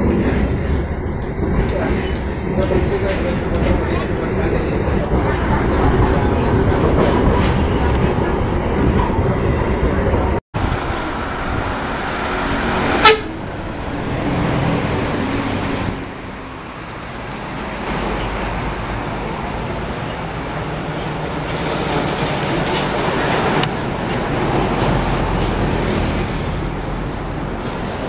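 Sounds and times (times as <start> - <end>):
buses passing on road: 0.0 - 28.0
bus horn toot: 12.8 - 13.5.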